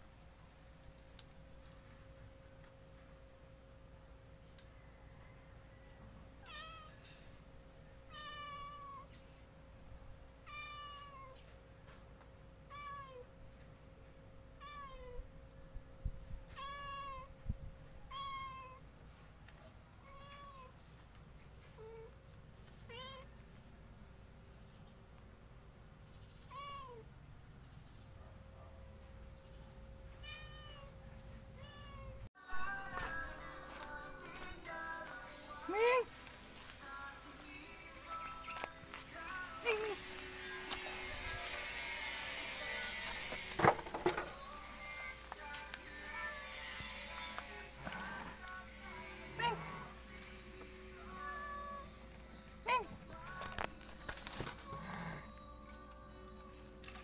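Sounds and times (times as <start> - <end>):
cat meowing: 6.4 - 7.0, 8.1 - 9.1, 10.4 - 11.4, 14.6 - 15.2, 16.5 - 17.3, 18.1 - 18.8, 22.9 - 23.3, 26.5 - 27.0, 30.2 - 30.9, 31.6 - 32.3, 51.0 - 52.0.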